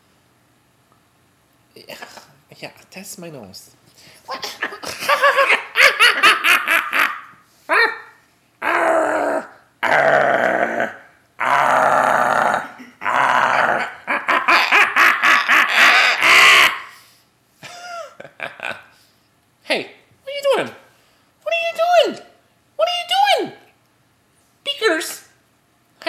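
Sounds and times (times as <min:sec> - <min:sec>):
man laughing: 0:04.4 - 0:08.0, 0:12.5 - 0:16.8, 0:17.6 - 0:18.9
harsh guttural vocal sounds: 0:08.6 - 0:14.8.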